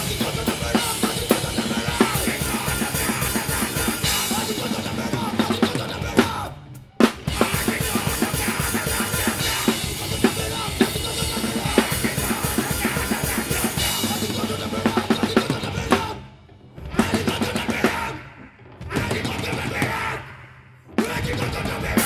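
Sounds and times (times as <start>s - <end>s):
fast drum beat: 0.0s - 16.2s, 18.8s - 20.1s, 21.0s - 22.0s
punk band playing live: 0.0s - 22.0s.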